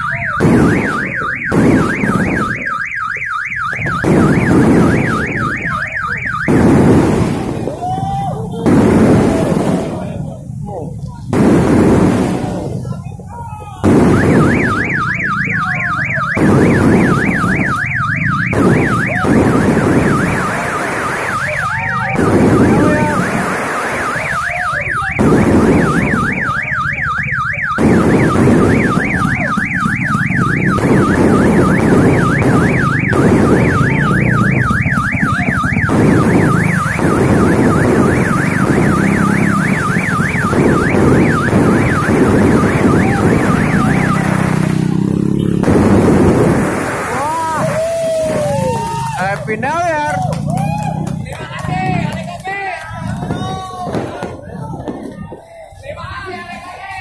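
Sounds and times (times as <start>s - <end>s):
car alarm warbling: 0.0s - 7.7s, 12.2s - 50.1s
fireworks banging and crackling: 0.0s - 57.0s.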